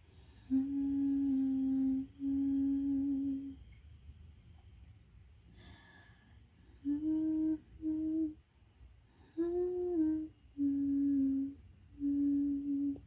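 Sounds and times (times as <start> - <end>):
person humming slow tune: 0.3 - 3.6, 6.6 - 8.4, 9.2 - 13.0.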